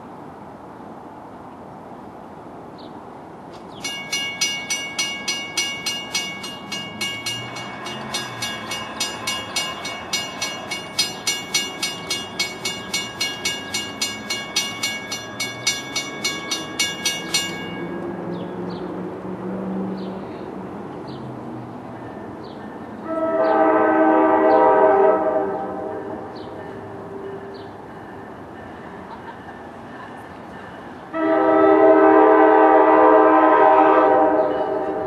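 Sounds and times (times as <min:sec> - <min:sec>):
railroad crossing bell ringing: 0:03.8 - 0:18.8, 0:21.8 - 0:23.4, 0:25.8 - 0:31.4, 0:34.4 - 0:35.0.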